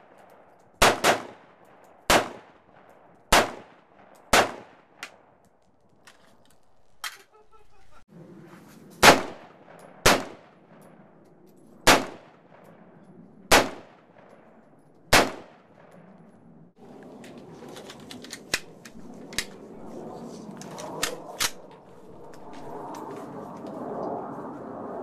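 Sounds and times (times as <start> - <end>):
rifle shots with echo: 0.8 - 5.4, 9.0 - 11.2, 11.8 - 16.2
rifle handling clicks: 17.2 - 19.6.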